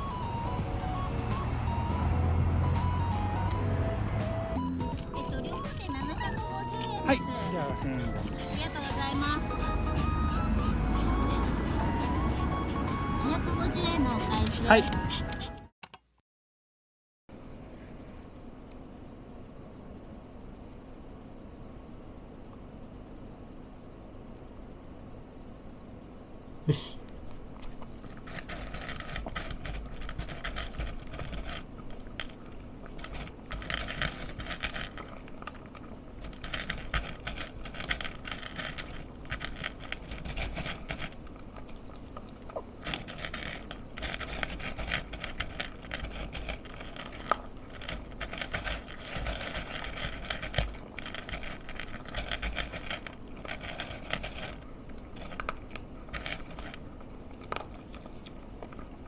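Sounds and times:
dog crunching dry food: 0:27.1 - 0:59.0.

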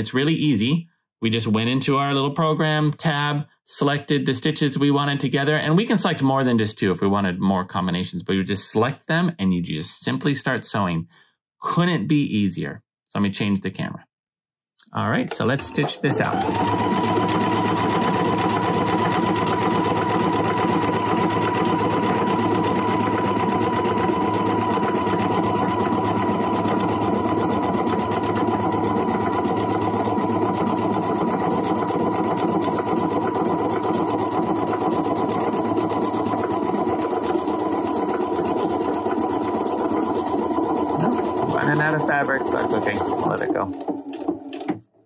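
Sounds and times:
sewing machine stitching: 0:15.2 - 0:44.9.

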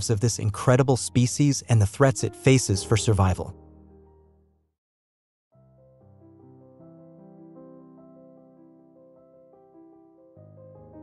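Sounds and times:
soft slow background music: 0:00.0 - 0:04.5.

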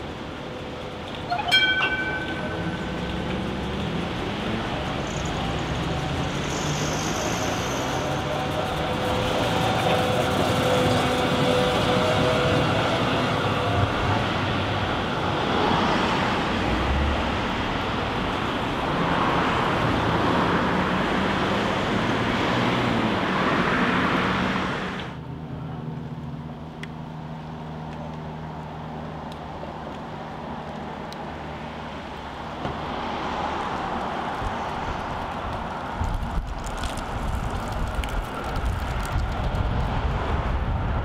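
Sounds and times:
tram rolling past: 0:00.0 - 0:25.0
road traffic noise: 0:00.0 - 0:41.0.

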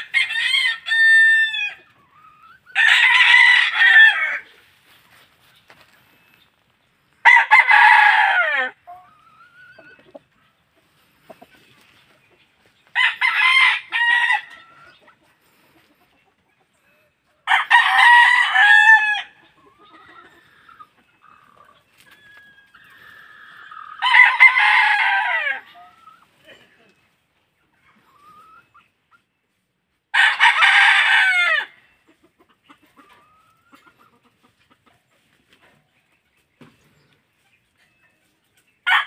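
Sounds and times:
roosters crowing: 0:00.0 - 0:05.9, 0:07.2 - 0:10.3, 0:12.8 - 0:15.2, 0:17.4 - 0:26.4, 0:30.1 - 0:32.0.

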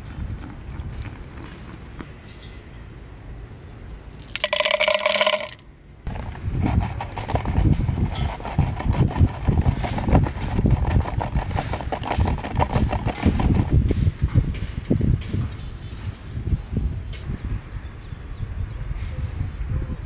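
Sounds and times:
cola fizzing and crackling: 0:04.2 - 0:05.6
candies clattering in plastic pipe: 0:04.2 - 0:13.7.

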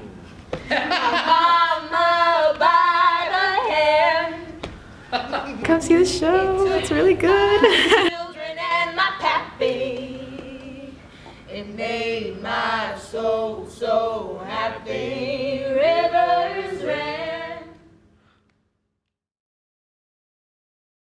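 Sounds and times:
voices singing a cappella: 0:00.7 - 0:18.0.

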